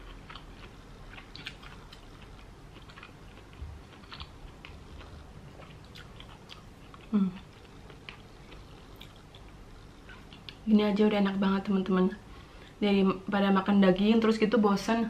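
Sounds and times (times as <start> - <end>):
person chewing: 0.0 - 10.6.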